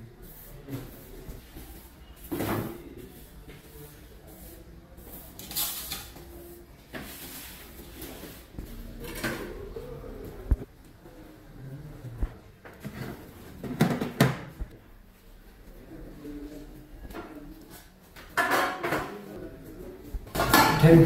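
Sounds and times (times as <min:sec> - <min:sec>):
broom sweeping tiled floor: 0:00.0 - 0:09.6.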